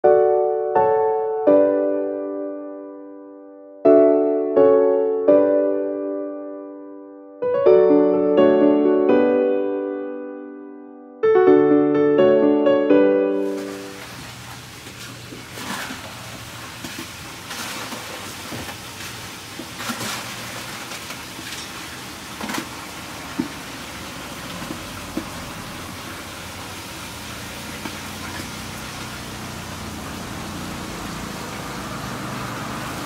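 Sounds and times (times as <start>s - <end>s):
piano tune: 0.0s - 16.0s.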